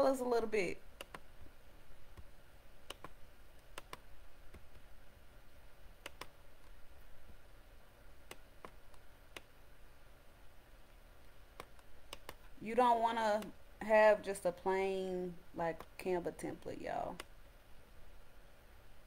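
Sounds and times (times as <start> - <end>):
computer mouse clicking: 1.0 - 1.3, 2.1 - 4.8, 6.0 - 6.8, 8.2 - 9.5, 11.5 - 12.5.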